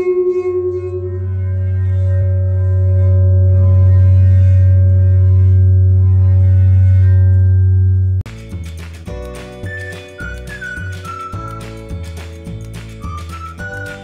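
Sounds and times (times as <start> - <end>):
metal plate ringing with deep hum: 0.0 - 8.2
second low pitch: 0.0 - 8.2.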